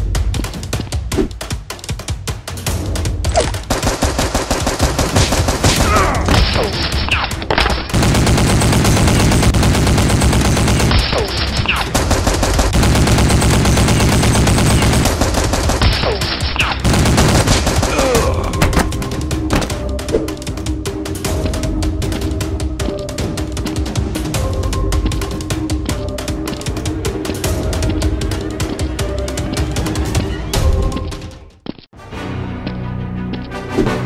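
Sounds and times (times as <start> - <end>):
machine gun fire: 3.7 - 6.6, 7.9 - 18.2.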